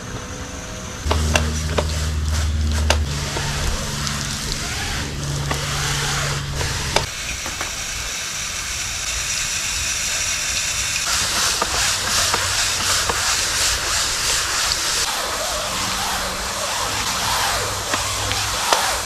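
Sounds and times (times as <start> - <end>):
water hissing: 0.0 - 19.0
brushes scrubbing a screen: 1.1 - 7.1, 11.0 - 19.0.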